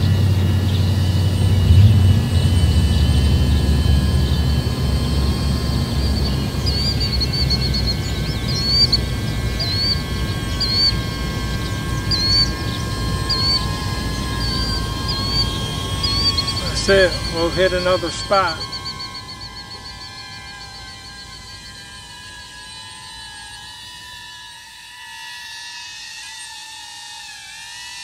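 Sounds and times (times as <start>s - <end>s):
low rumble: 0.0s - 21.6s
bird chirping: 0.0s - 23.8s
drone propellers whining: 0.0s - 28.0s.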